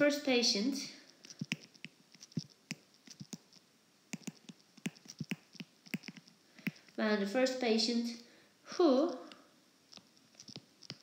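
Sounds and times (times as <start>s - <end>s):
stylus tapping on glass screen: 4.2s - 6.9s.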